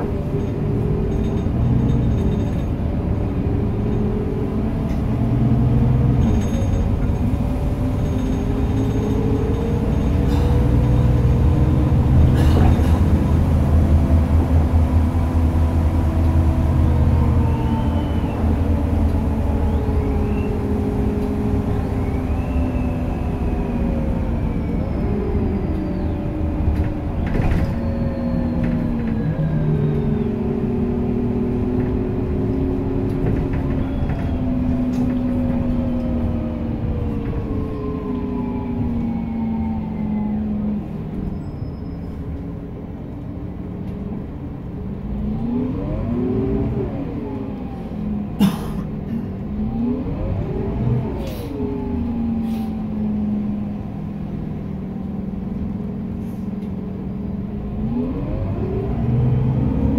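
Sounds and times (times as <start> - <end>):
bus engine rumbling: 0.0 - 59.9.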